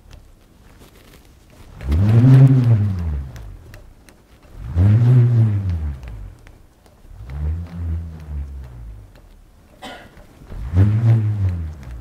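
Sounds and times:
didgeridoo drone: 1.7s - 3.9s, 4.5s - 9.4s, 10.5s - 12.0s.

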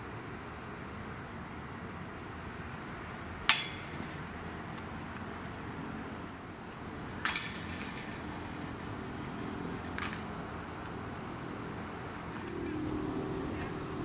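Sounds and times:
disc hitting metal chains: 3.5s - 4.4s, 7.1s - 10.4s, 12.1s - 12.8s
faint clink: 3.5s - 4.4s, 7.2s - 10.2s.

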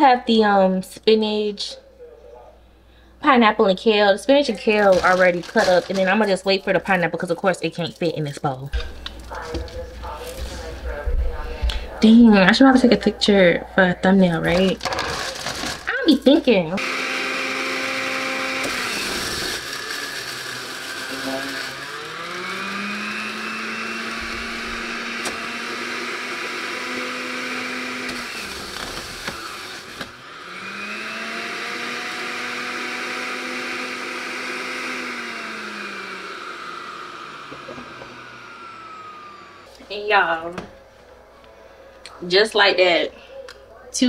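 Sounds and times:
juicer motor whirring: 4.8s - 6.2s, 14.5s - 16.0s, 16.8s - 39.8s.

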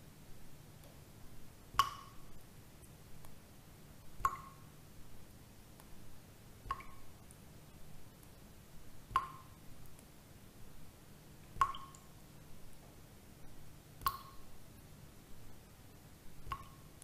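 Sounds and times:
water drops plinking: 4.2s - 4.6s, 6.7s - 7.0s, 9.2s - 9.6s, 11.6s - 12.1s, 14.0s - 14.4s, 16.5s - 16.8s.

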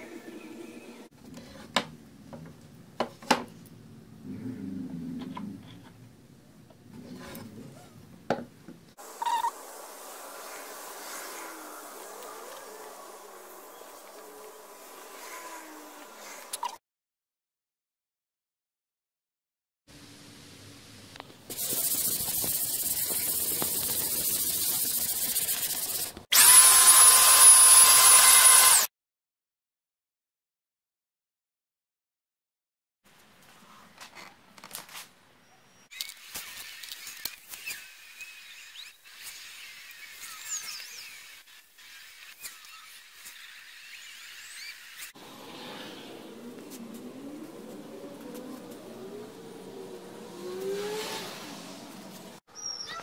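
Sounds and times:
steady hiss: 9.0s - 15.8s, 19.9s - 26.2s
hand sanding wood: 21.5s - 26.2s
handheld blower whining: 21.6s - 28.9s.

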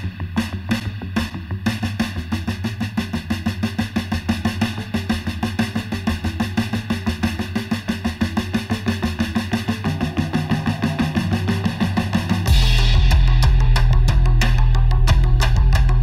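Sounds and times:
fast steady drum beat: 0.0s - 16.0s
low sustained bass: 9.9s - 16.0s.

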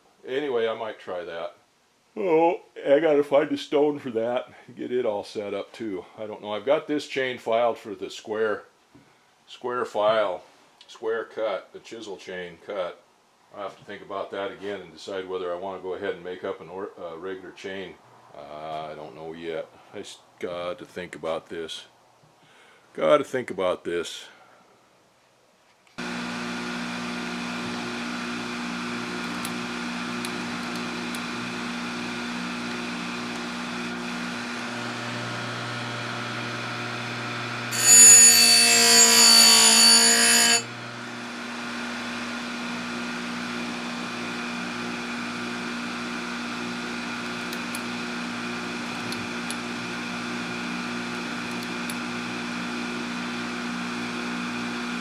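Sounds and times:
grinder motor hum and whine: 26.0s - 55.0s
harsh grinding of stone on steel: 37.7s - 40.7s.

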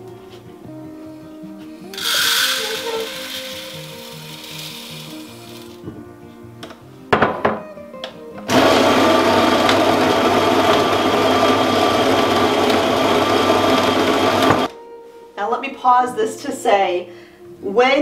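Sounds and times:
electric grain mill grinding: 1.9s - 5.8s, 8.5s - 14.7s.

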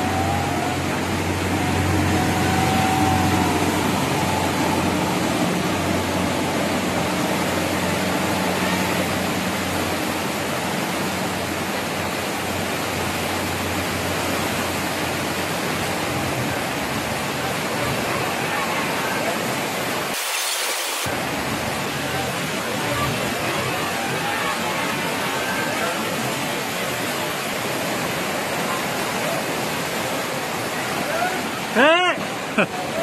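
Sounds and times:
floodwater rushing: 0.0s - 33.0s.

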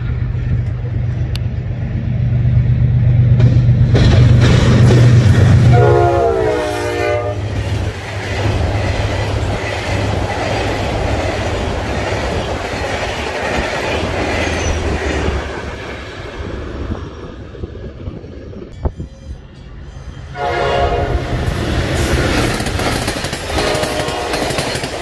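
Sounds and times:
locomotive engine droning: 0.0s - 25.0s
train coaches clattering on rails: 3.3s - 17.0s, 18.1s - 25.0s
train horn blast: 5.6s - 7.5s, 20.3s - 21.6s, 23.5s - 25.0s.

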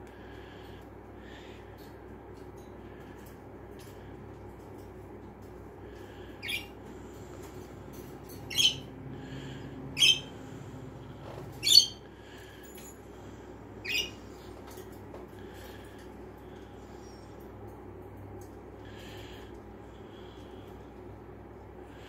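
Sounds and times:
parrot chirps: 6.4s - 6.8s, 8.5s - 8.9s, 10.0s - 10.3s, 11.6s - 12.0s, 13.8s - 14.2s.

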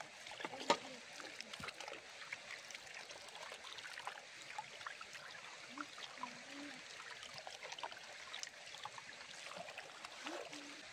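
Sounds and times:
water splashing in a metal pot: 0.1s - 5.0s.

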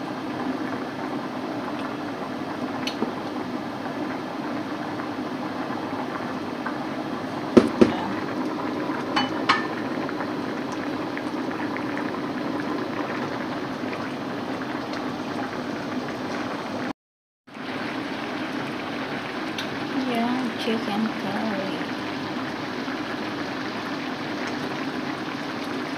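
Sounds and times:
curry bubbling in a pot: 0.1s - 16.9s, 17.5s - 25.9s
sharp knocks: 7.6s - 8.0s.

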